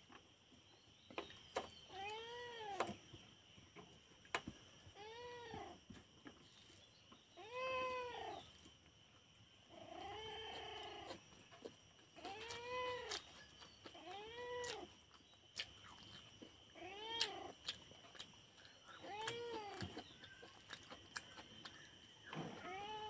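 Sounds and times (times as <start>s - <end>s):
cat meowing: 7.4s - 8.4s, 12.2s - 13.2s, 14.0s - 14.9s, 19.0s - 19.9s, 22.6s - 23.0s.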